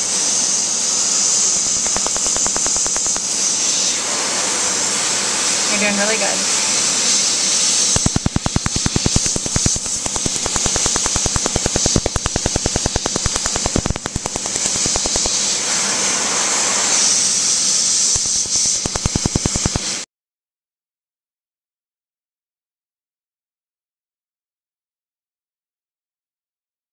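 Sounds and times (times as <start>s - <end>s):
steady hiss: 0.0s - 20.0s
laser firing sharp snaps: 1.8s - 3.4s, 7.7s - 15.6s, 17.9s - 20.0s.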